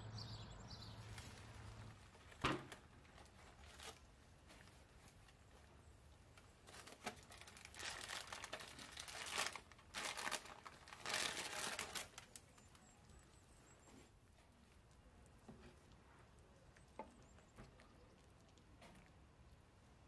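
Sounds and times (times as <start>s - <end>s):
aluminium foil crinkling: 1.1s - 5.7s, 6.3s - 13.4s.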